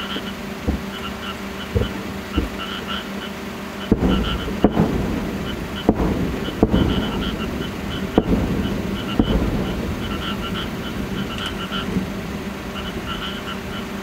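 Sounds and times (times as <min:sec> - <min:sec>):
distant firework shells bursting: 0:00.0 - 0:14.0.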